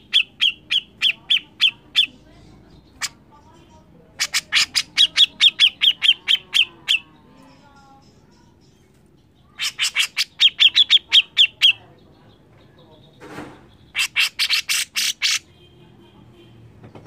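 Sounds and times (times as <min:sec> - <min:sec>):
bird screeching: 0:00.0 - 0:02.2, 0:04.2 - 0:07.2, 0:09.5 - 0:11.8, 0:13.9 - 0:15.5.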